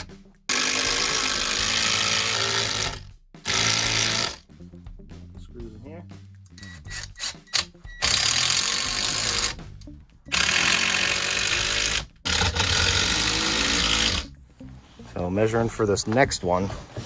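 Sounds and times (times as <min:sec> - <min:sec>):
cordless driver driving screws: 0:00.0 - 0:04.4, 0:06.6 - 0:09.6, 0:10.3 - 0:14.3.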